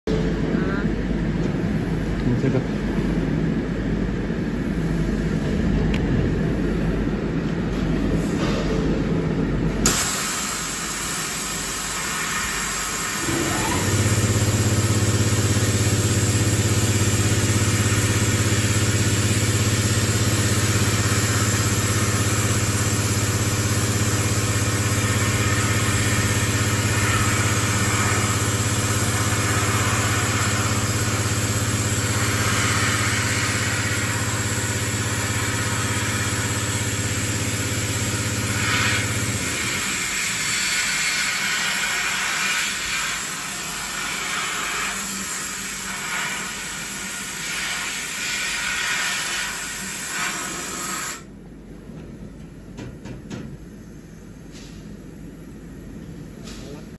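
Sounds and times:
low machine hum: 0.1s - 40.5s, 51.2s - 56.9s
sandblaster air hiss: 9.8s - 51.3s.

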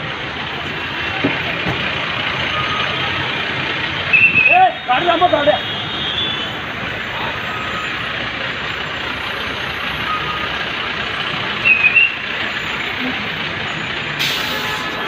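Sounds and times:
highway traffic: 0.0s - 15.0s
truck engines running: 0.0s - 15.0s
burst of hiss: 14.2s - 14.9s.

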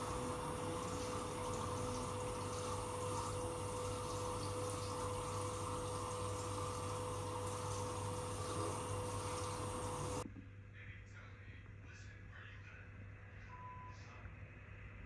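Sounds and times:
water pouring into stone tub: 0.0s - 10.2s
steady hum: 0.0s - 15.0s.

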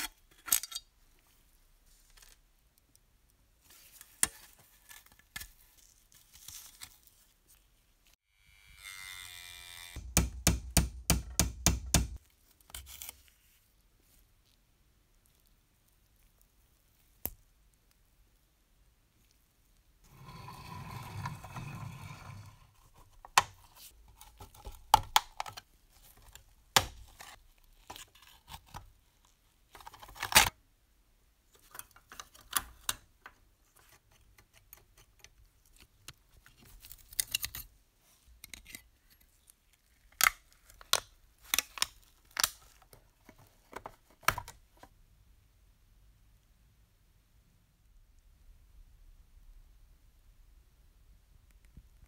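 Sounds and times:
rough rubbing noise: 20.1s - 23.0s.

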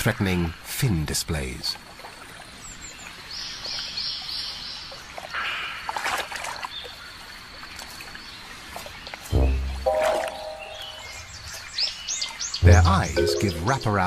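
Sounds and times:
water trickling and splashing: 0.7s - 14.0s
bird chirping: 9.3s - 14.0s
thin high tone: 9.4s - 11.1s, 12.6s - 14.0s.

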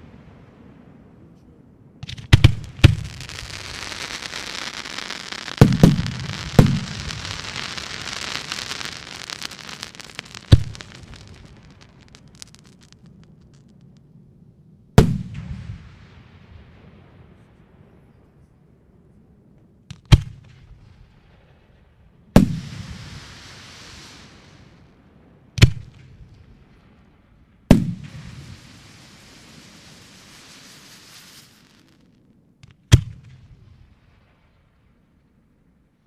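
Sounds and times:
fireworks bangs: 2.0s - 14.0s, 27.7s - 33.6s
fireworks crackling hiss: 2.0s - 14.0s, 22.4s - 25.0s, 27.7s - 32.2s.

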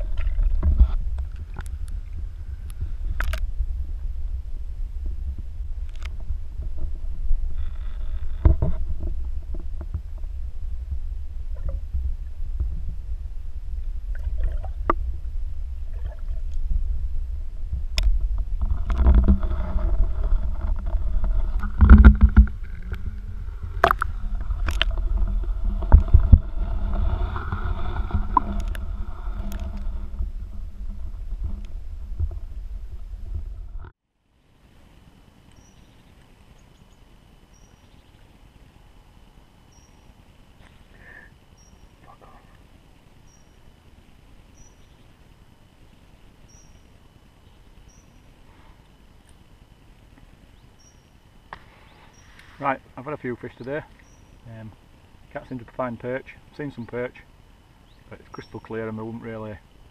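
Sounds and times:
water rumbling and gurgling: 0.0s - 34.0s
steady multi-pitched hum: 0.0s - 59.9s
loud thumps: 17.8s - 33.9s.

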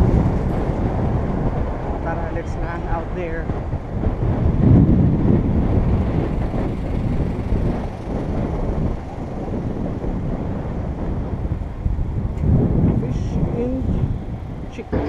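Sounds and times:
bicycle road noise: 0.0s - 15.0s
wind buffeting microphone: 0.0s - 15.0s.

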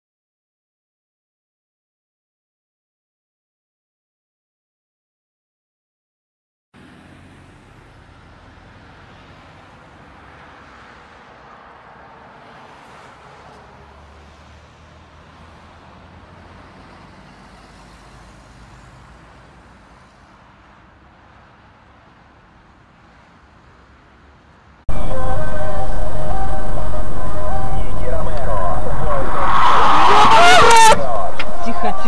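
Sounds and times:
street traffic noise: 6.8s - 32.0s
low engine rumble: 24.9s - 32.0s.

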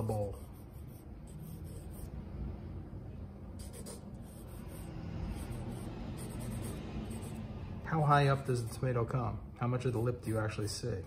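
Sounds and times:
pencil scratching on paper: 0.0s - 2.2s, 3.6s - 7.5s.

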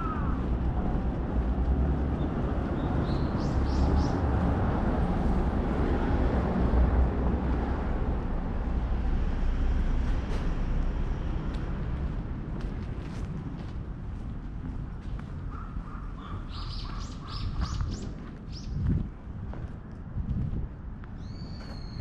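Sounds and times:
low outdoor rumble: 0.0s - 16.1s.

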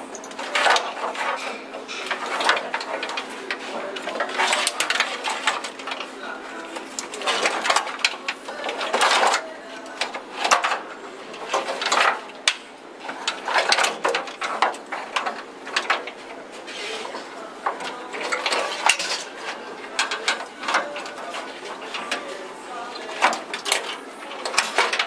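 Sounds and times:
wiring connectors clicking: 11.8s - 15.2s.

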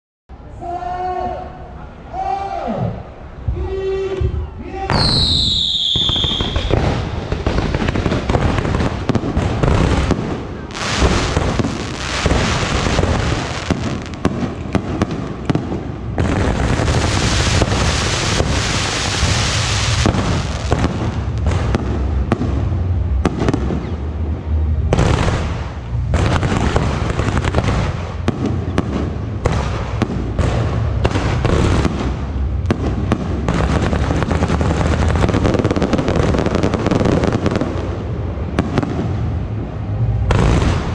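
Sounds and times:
fireworks launching and banging: 4.9s - 40.9s
hissing crackle: 16.4s - 21.7s.

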